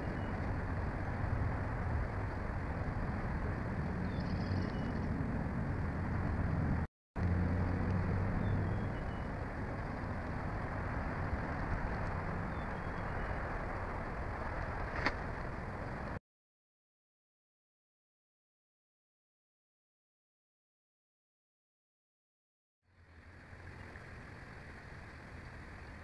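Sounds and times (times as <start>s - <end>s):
faint bird chirps: 0.0s - 0.4s, 4.0s - 5.1s, 8.4s - 9.3s
outdoor rushing noise with low rumble: 0.0s - 16.2s, 22.9s - 26.0s.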